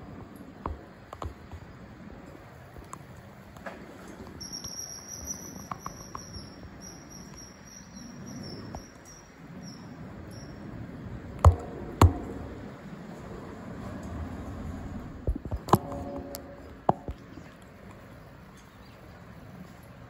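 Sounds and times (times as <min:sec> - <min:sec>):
high insect trill: 0:04.4 - 0:10.8
sharp knocks: 0:11.4 - 0:12.8, 0:15.2 - 0:17.5.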